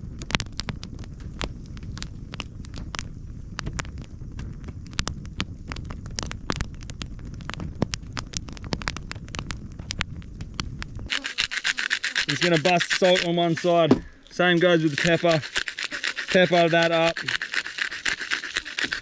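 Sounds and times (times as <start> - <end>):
low fire rumble: 0.0 - 11.2
campfire crackling and popping: 0.0 - 19.0.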